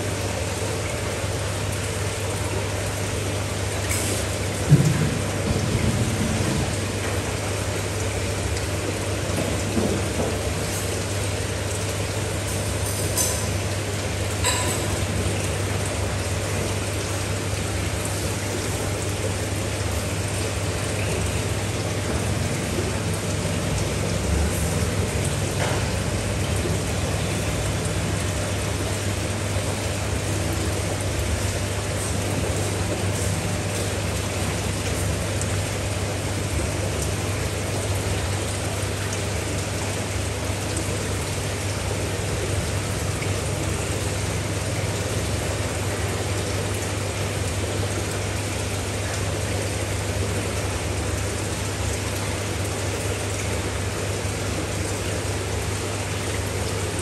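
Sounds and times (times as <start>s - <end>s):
fish tank pump hum: 0.0s - 57.0s.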